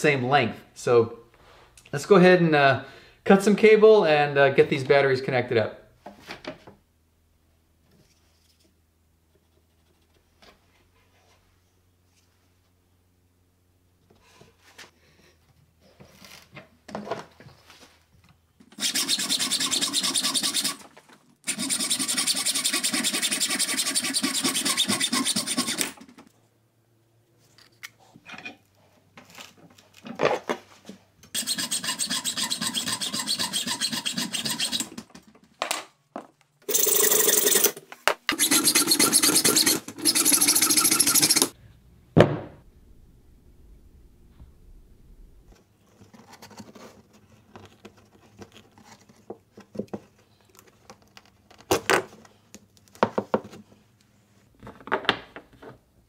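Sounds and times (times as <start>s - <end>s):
air saw cutting cable: 18.7s - 26.1s, 31.3s - 35.1s, 36.7s - 41.6s.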